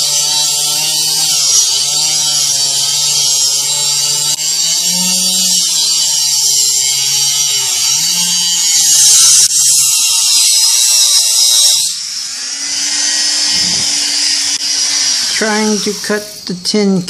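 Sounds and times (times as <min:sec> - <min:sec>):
cut-off disc grinding metal: 0:00.0 - 0:16.5
rotary tool motor whine: 0:00.0 - 0:16.5.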